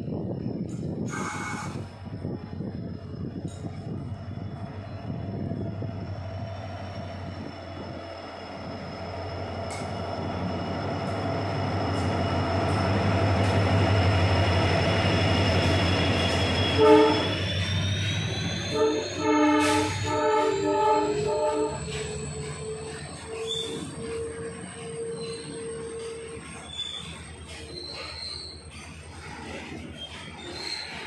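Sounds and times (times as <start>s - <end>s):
diesel locomotive engine rumble: 0.0s - 31.0s
train horn blast: 1.1s - 1.9s, 16.6s - 17.4s, 18.6s - 21.9s.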